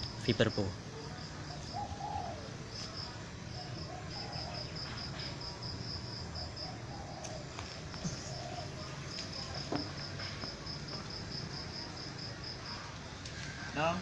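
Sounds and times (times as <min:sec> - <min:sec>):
cricket chirping: 0:00.0 - 0:14.0
dove cooing: 0:01.0 - 0:02.8, 0:03.4 - 0:10.5.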